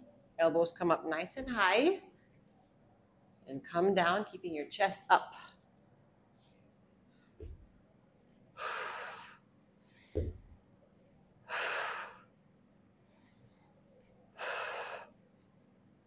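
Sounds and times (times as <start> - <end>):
dull low thump: 7.4 - 7.7, 10.2 - 10.5.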